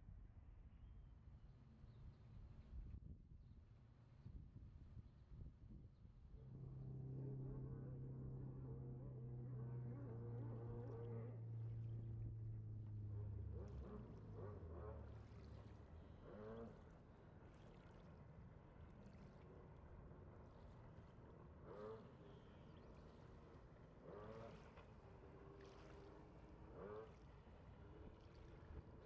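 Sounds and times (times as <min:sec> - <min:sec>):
distant jet ski engine drone: 0:06.3 - 0:29.0.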